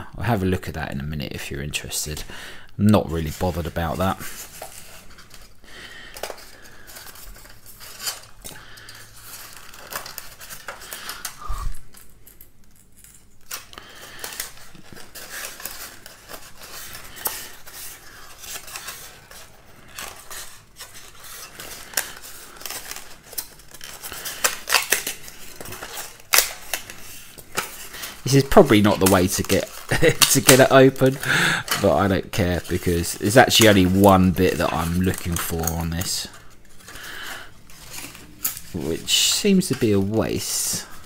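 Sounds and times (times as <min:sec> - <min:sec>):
foam casing cracking: 0:13.0 - 0:41.0.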